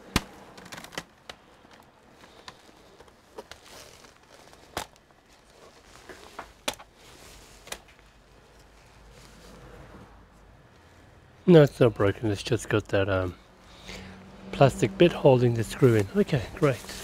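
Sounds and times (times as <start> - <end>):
paper rustling: 0.4 - 9.7, 15.8 - 17.0.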